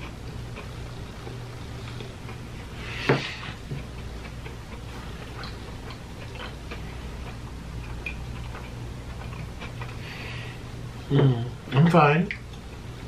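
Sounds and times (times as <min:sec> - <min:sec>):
low room hum: 0:00.0 - 0:13.0
faint eating clicks: 0:03.6 - 0:10.0.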